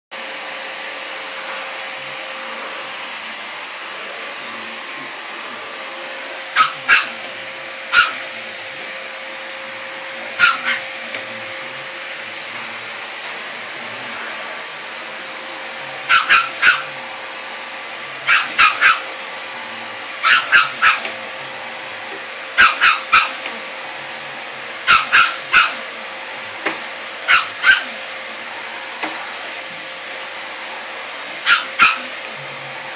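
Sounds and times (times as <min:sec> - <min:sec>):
vacuum cleaner running: 0:00.1 - 0:32.9
small dog yapping: 0:06.5 - 0:08.4, 0:10.4 - 0:10.9, 0:16.1 - 0:16.9, 0:18.2 - 0:19.1, 0:20.2 - 0:21.1, 0:22.5 - 0:23.6, 0:24.9 - 0:26.0, 0:27.2 - 0:28.0, 0:31.4 - 0:32.2.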